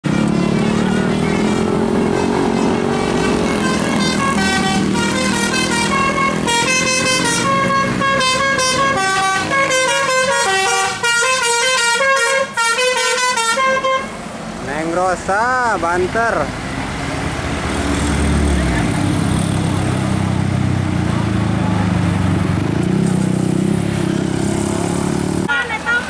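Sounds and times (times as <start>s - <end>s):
passing motorcycles: 0.0s - 12.7s, 13.3s - 26.0s
traffic: 0.0s - 26.0s
bus horn playing a melody: 0.4s - 14.2s.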